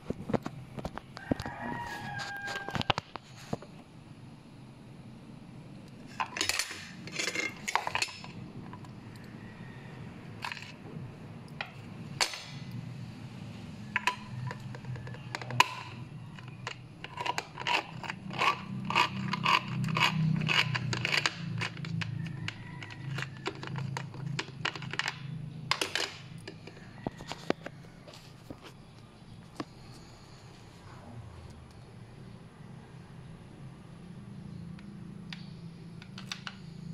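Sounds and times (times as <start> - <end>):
can opener clicking and scraping: 10.4 - 10.8, 13.9 - 27.7.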